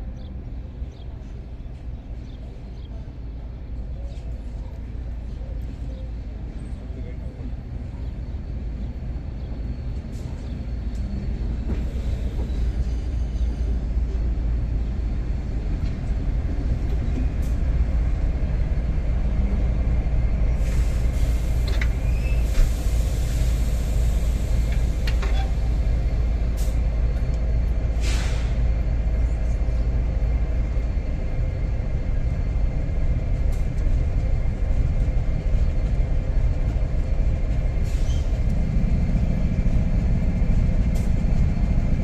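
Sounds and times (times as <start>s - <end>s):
diesel locomotive engine rumble: 0.0s - 42.0s
air brakes hissing: 20.6s - 25.6s, 27.9s - 28.6s, 37.8s - 38.4s.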